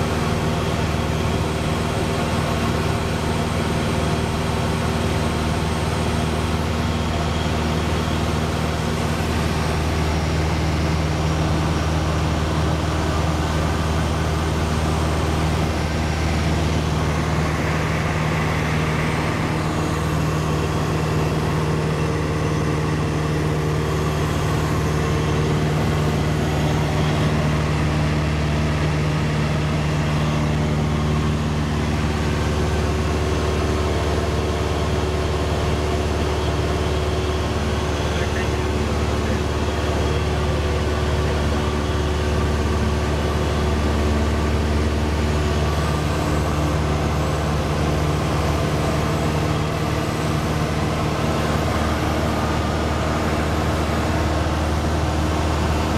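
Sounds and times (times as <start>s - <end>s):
airplane engine droning: 0.0s - 55.9s.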